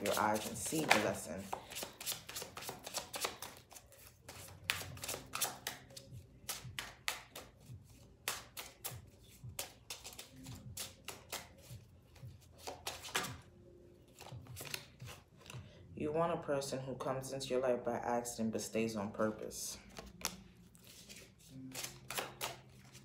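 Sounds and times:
cards being shuffled: 0:00.0 - 0:13.4, 0:14.1 - 0:15.6, 0:19.8 - 0:23.0.

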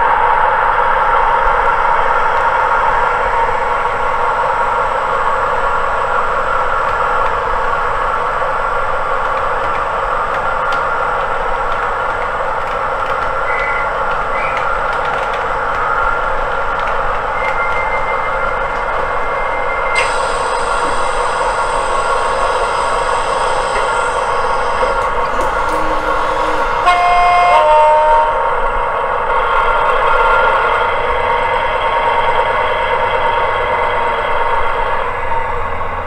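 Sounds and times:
model train engine sound: 0:00.0 - 0:36.0
longer steady tone: 0:20.0 - 0:28.6
short high tones: 0:21.4 - 0:28.6.

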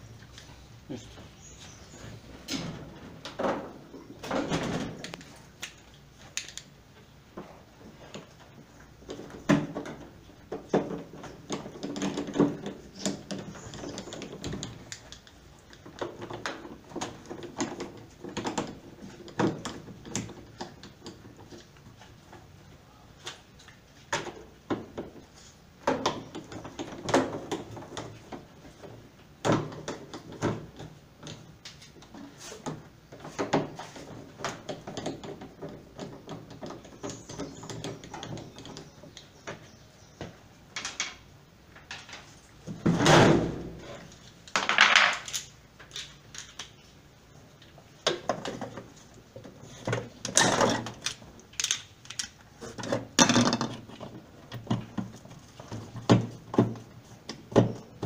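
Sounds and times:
clicks and knocks of plastic parts: 0:07.3 - 0:22.5, 0:23.2 - 0:43.1, 0:43.9 - 0:46.8, 0:47.5 - 0:58.0
plastic parts clattering: 0:44.1 - 0:46.8, 0:48.1 - 0:58.0.

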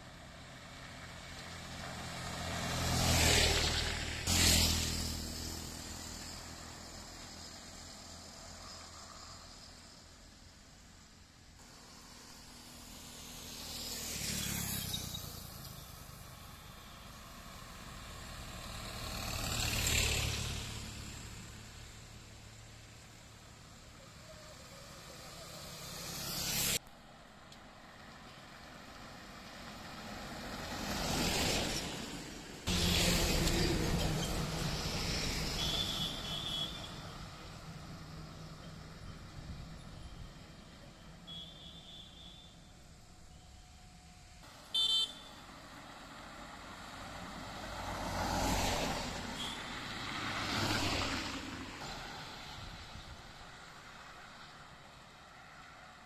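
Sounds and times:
road traffic noise: 0:00.0 - 0:56.0
utility vehicle engine and tyres: 0:00.0 - 0:56.0
car passing by: 0:00.4 - 0:10.4, 0:11.6 - 0:26.8, 0:27.7 - 0:39.6, 0:44.6 - 0:56.0
vehicle horn blast: 0:35.6 - 0:36.9, 0:41.3 - 0:42.7, 0:44.7 - 0:45.5, 0:49.4 - 0:49.7.

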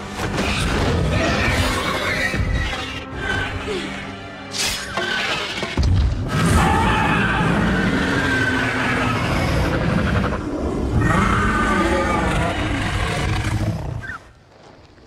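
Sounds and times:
creature growling roar: 0:06.3 - 0:14.0.

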